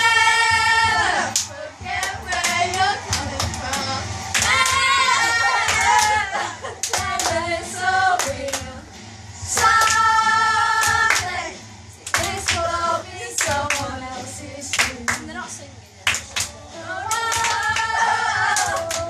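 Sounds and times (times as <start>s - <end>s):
group of girls and women singing: 0.0s - 8.9s, 9.5s - 15.5s, 16.1s - 19.0s
hands clapping unevenly: 1.3s - 4.9s, 5.6s - 6.2s, 6.8s - 7.4s, 8.2s - 8.7s, 9.6s - 10.0s, 10.8s - 11.3s, 12.0s - 12.7s, 13.4s - 13.9s, 14.7s - 15.3s, 16.0s - 17.9s, 18.6s - 19.0s.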